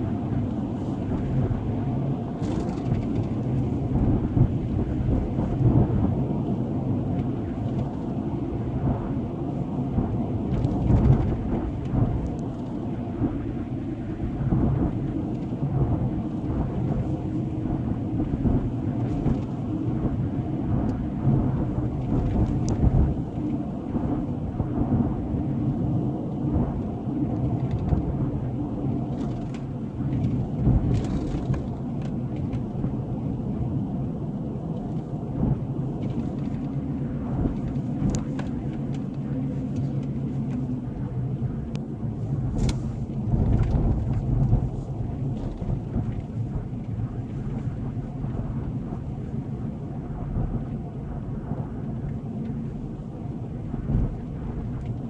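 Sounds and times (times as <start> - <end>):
road and engine rumble in cabin: 0.0 - 55.0.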